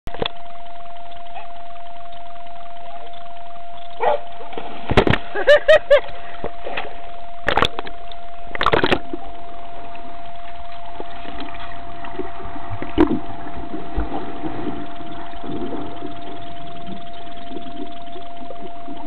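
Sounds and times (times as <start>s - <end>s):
muffled underwater churning and bubbles: 0.1s - 19.0s
thin steady tone: 0.1s - 19.0s
water splashes: 4.2s - 7.8s, 8.5s - 19.0s.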